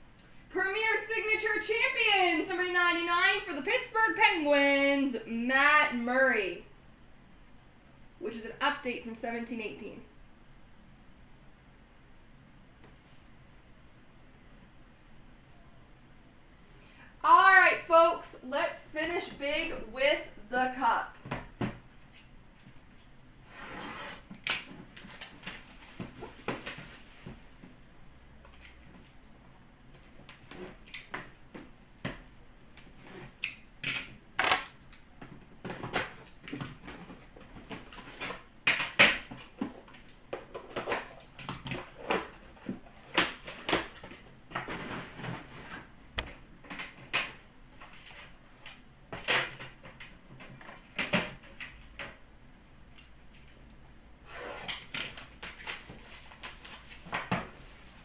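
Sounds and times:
cardboard box scraping: 0:23.5 - 0:24.3.

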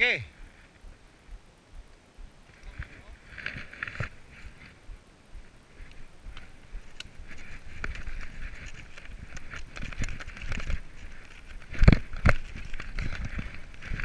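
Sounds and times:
bike rattling: 0:02.6 - 0:04.8, 0:05.8 - 0:14.0.

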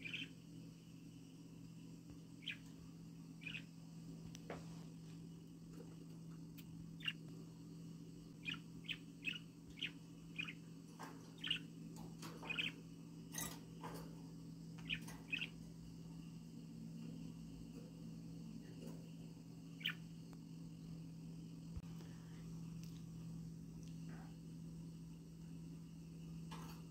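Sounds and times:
budgerigars chirping: 0:00.0 - 0:00.3, 0:03.4 - 0:03.7, 0:07.0 - 0:07.2, 0:08.4 - 0:10.6, 0:11.4 - 0:12.8, 0:14.8 - 0:15.6
steady low hum: 0:00.0 - 0:26.9.

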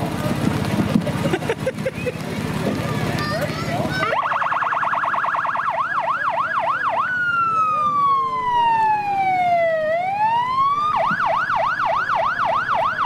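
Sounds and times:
electronic siren: 0:04.0 - 0:13.0.

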